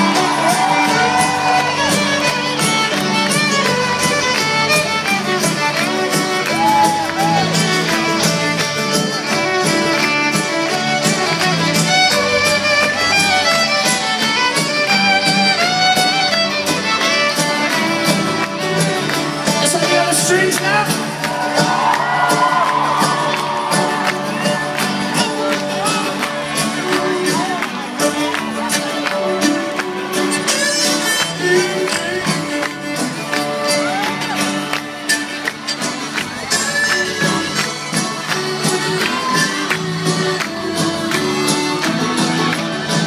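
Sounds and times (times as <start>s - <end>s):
live folk-rock band with fiddle: 0.0s - 43.0s.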